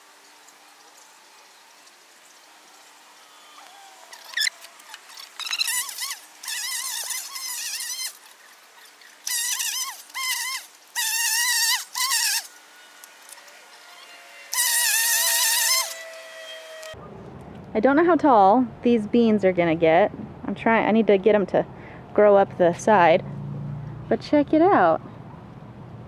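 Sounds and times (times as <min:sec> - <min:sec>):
electric string trimmer whining: 0:02.5 - 0:17.0.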